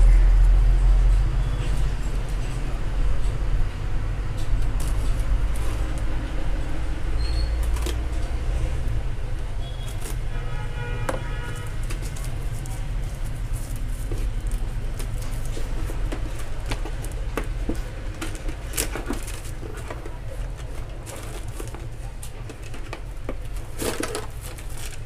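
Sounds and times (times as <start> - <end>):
box being handled and opened: 11.2 - 25.0.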